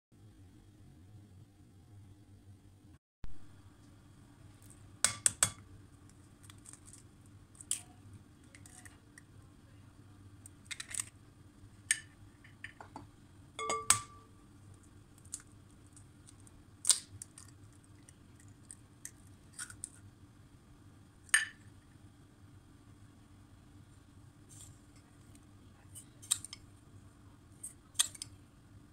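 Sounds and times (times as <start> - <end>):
eggs cracking: 4.6 - 9.4, 10.4 - 11.2, 14.6 - 20.1, 26.1 - 26.8, 27.6 - 28.4.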